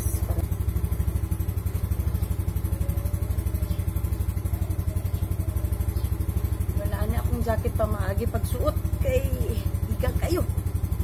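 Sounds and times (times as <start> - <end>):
small motorcycle engine idling: 0.0 - 11.0.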